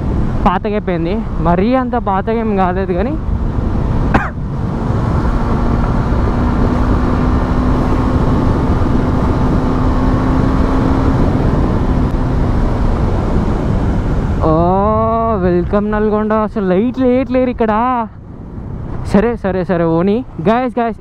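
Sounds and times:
wind rushing over microphone: 0:00.0 - 0:21.0
motorcycle engine: 0:02.7 - 0:15.4.

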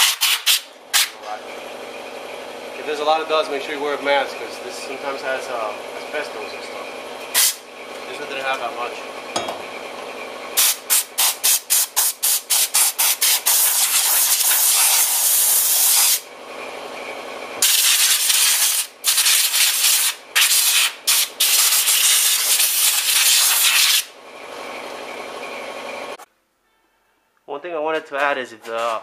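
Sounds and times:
compressed air blow gun blasting: 0:00.0 - 0:01.2, 0:07.3 - 0:07.6, 0:10.6 - 0:16.2, 0:17.6 - 0:24.1.

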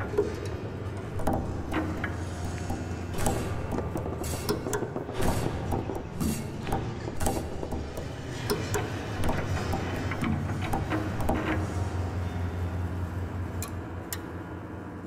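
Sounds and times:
balls bouncing on piano strings: 0:01.0 - 0:11.5.

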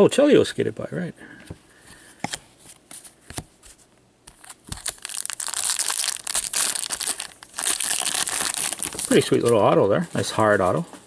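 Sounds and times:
wrapper crinkling and crumpling: 0:04.4 - 0:09.6.

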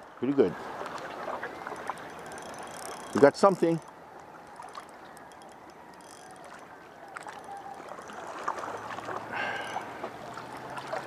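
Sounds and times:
water lapping and trickling: 0:00.0 - 0:11.0
faint clicks: 0:00.8 - 0:10.4.

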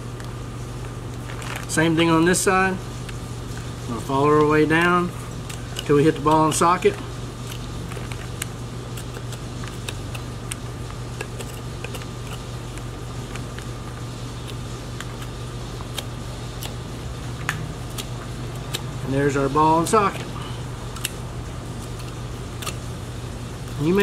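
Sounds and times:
fan humming: 0:00.0 - 0:24.0.

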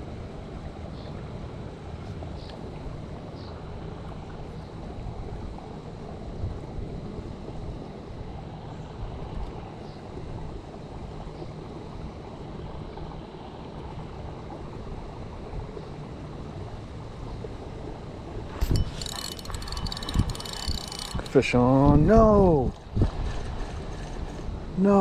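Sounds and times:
wind buffeting microphone: 0:14.0 - 0:24.8.

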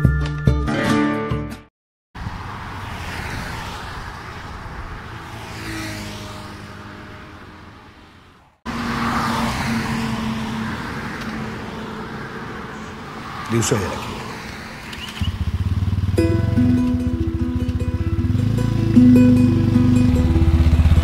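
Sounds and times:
highway traffic passing: 0:02.2 - 0:21.0.

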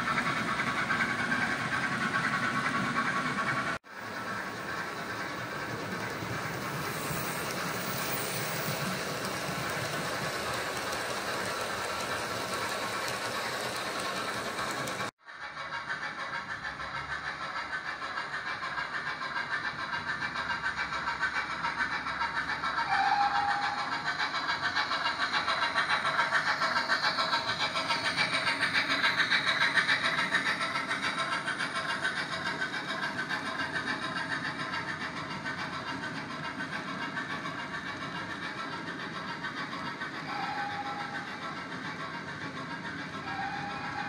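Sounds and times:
model train wheels clicking: 0:00.0 - 0:44.0.

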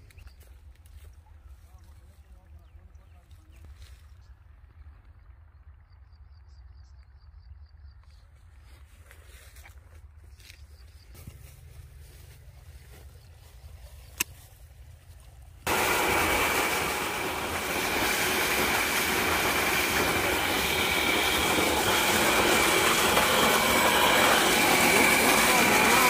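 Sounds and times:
steady high whine: 0:15.2 - 0:26.0
water gushing from a pipe: 0:15.7 - 0:26.0.

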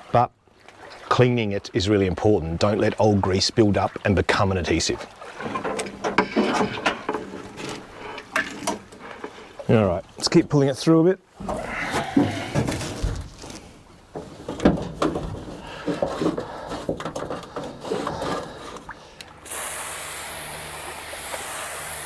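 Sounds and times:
aerosol can spraying hiss: 0:19.5 - 0:22.0.

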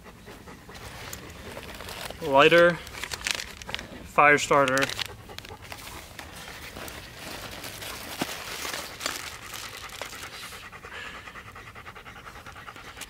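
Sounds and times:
dog panting: 0:00.0 - 0:02.2, 0:04.8 - 0:13.0.

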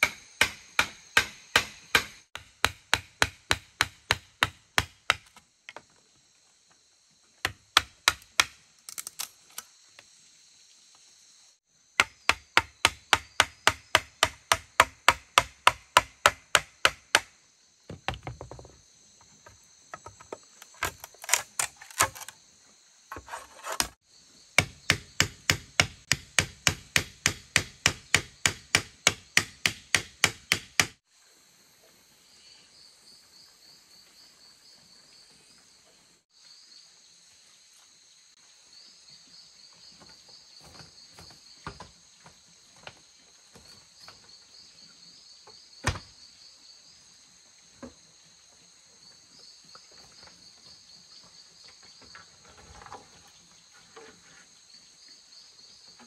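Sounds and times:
tool striking bamboo: 0:00.0 - 0:05.8, 0:07.4 - 0:09.3, 0:12.0 - 0:17.3, 0:19.9 - 0:22.3, 0:24.6 - 0:31.0
insects chirping: 0:00.0 - 0:56.0.

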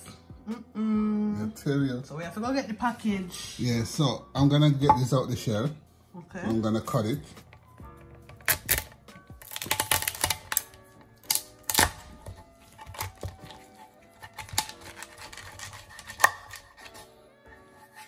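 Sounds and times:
background music: 0:00.0 - 0:18.0
knife cracking shell: 0:08.3 - 0:17.0.

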